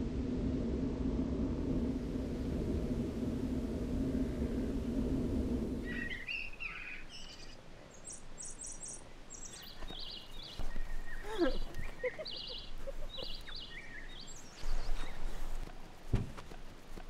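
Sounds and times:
low steady rumble: 0.0s - 6.5s
songbirds chirping: 5.8s - 17.0s
thumps: 16.1s - 16.6s.

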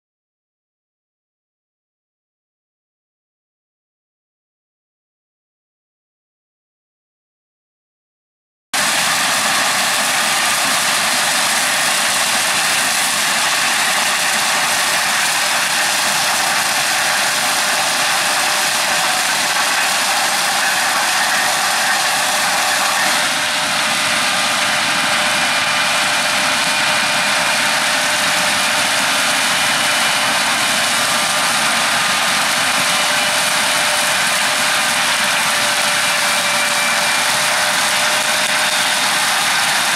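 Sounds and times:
combine harvester engine and machinery: 8.8s - 39.9s.

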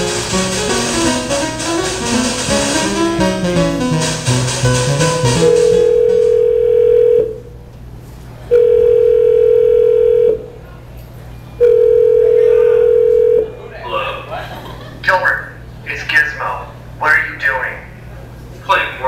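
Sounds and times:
music: 0.0s - 7.2s
steady electronic tone: 0.0s - 7.5s.

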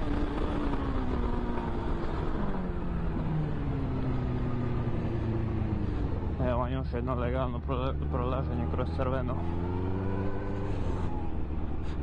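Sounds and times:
motorcycle engine: 8.0s - 12.0s.

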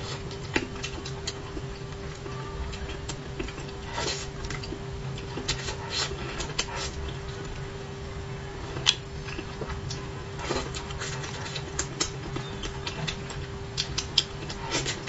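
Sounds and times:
steady low hum: 0.0s - 15.0s
chewing and mouth smacks: 8.8s - 15.0s.

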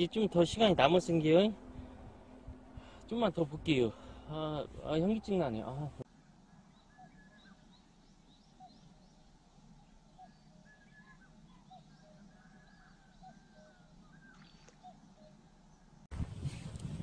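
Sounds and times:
faint bird chirps and whistles: 6.4s - 15.9s.

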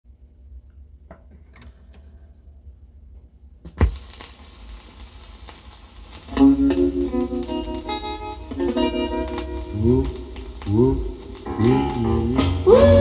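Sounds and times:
record player hum: 0.1s - 13.0s
vinyl surface hiss and crackle: 0.4s - 13.0s
faint mechanical clicks: 0.6s - 2.3s
stylus dropping onto record: 3.6s - 12.7s
music from record: 3.8s - 13.0s.

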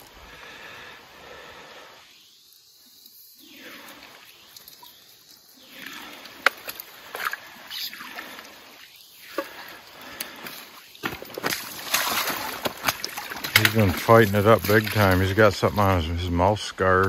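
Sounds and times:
fish splashing in net: 11.0s - 15.2s.

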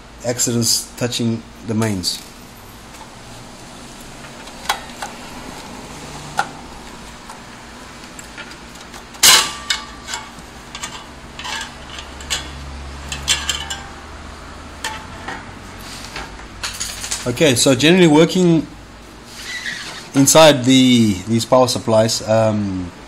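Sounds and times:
metallic clinks and knocks: 8.4s - 14.1s.

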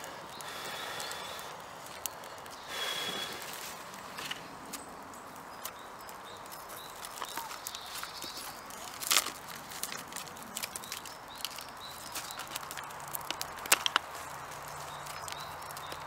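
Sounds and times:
twig fire crackling: 0.0s - 16.0s
faint bird chirps: 4.8s - 9.0s
bark rustling and tearing: 5.6s - 16.0s.

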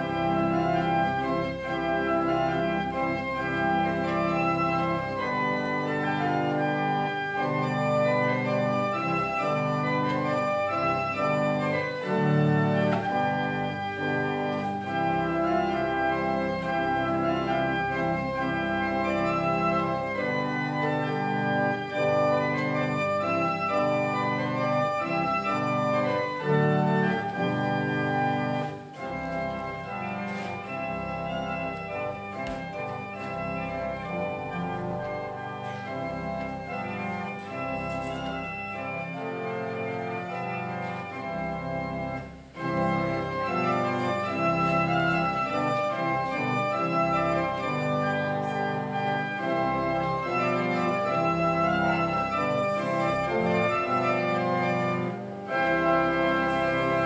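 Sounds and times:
organ playing held chords: 0.0s - 57.0s.

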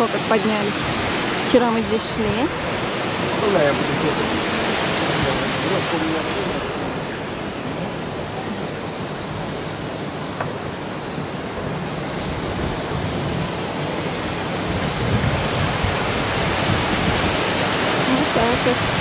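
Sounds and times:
water rushing through sluices: 0.0s - 19.0s.

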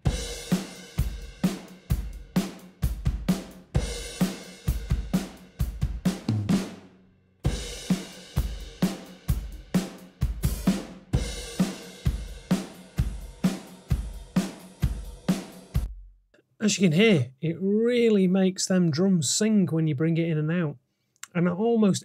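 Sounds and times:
drum kit playing a groove: 0.0s - 16.0s.

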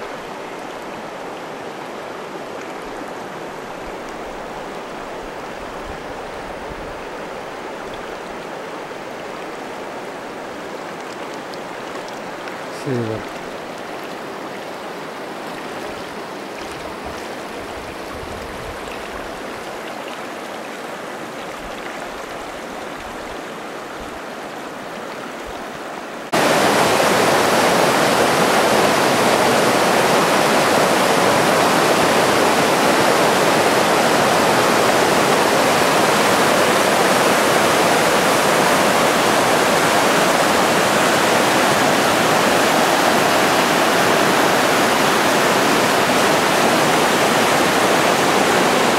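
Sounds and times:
river water flowing: 0.0s - 48.9s
white-water rapids rushing: 0.0s - 48.9s.

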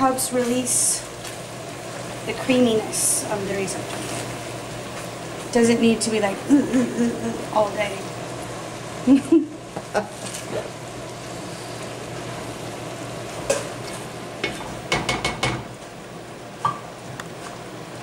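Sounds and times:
risotto simmering with sizzling hiss: 0.0s - 18.0s
spoon stirring and knocking pan: 14.4s - 15.7s.

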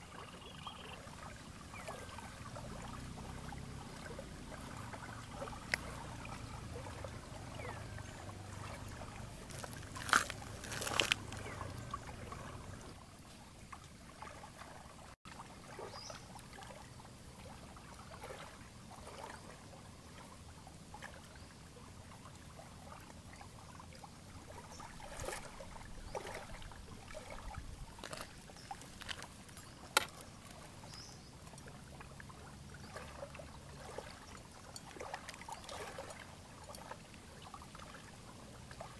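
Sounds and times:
low steady hum: 0.0s - 14.9s
lake water lapping at shore: 0.0s - 38.9s.

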